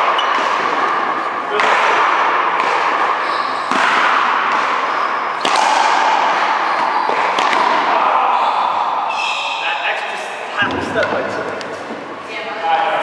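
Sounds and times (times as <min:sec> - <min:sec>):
racquetball hits echoing: 0:00.0 - 0:08.2, 0:10.6 - 0:12.3.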